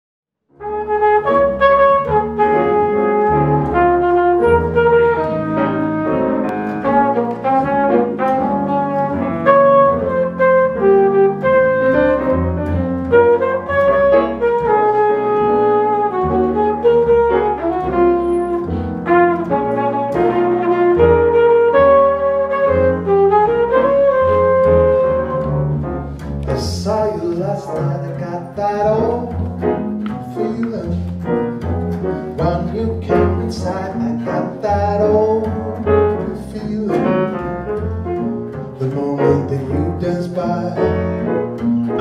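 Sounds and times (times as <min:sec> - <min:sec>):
double bass: 0:00.5 - 0:42.0
flugelhorn melody: 0:00.5 - 0:42.0
grand piano chords: 0:00.5 - 0:42.0.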